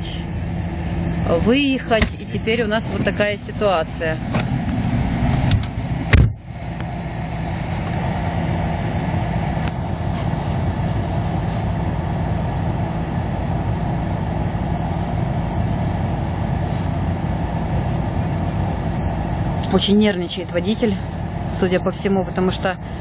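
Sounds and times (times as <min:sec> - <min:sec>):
car engine idling: 0:00.0 - 0:23.0
sharp thump: 0:02.0 - 0:02.2, 0:05.5 - 0:06.4.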